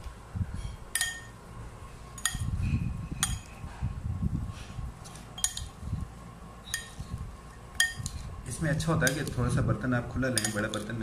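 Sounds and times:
spoon clinking against bowl: 1.0s - 1.3s, 5.4s - 5.7s, 6.7s - 7.0s, 7.8s - 8.2s, 10.3s - 10.9s
food being mixed in a bowl: 4.6s - 11.0s.

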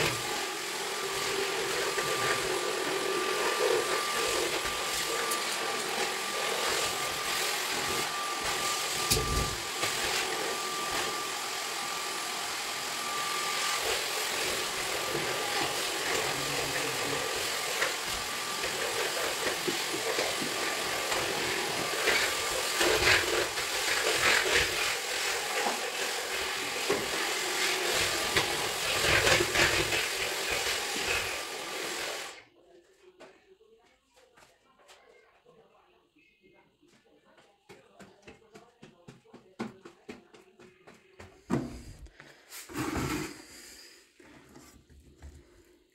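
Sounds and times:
vacuum cleaner motor running: 0.0s - 32.4s.

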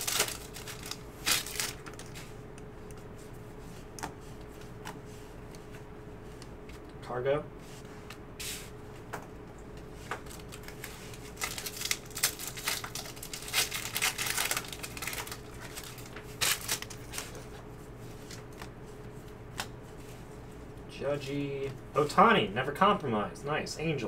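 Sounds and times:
foil wrapper crinkling and tearing: 0.0s - 2.2s, 10.2s - 17.4s.

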